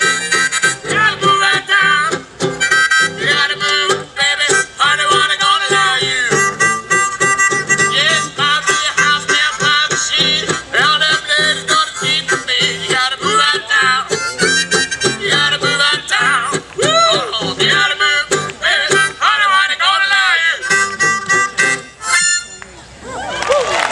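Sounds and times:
banjo and horns playing: 0.0s - 16.4s, 20.4s - 22.6s.

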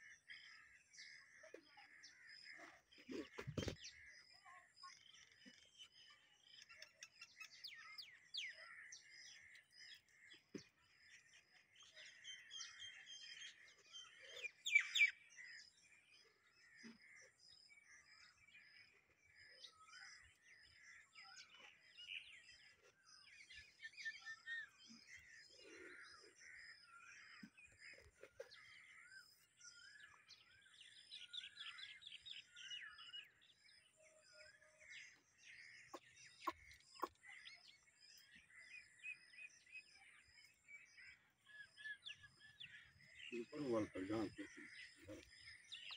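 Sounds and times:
small birds chirping: 0.0s - 45.9s.

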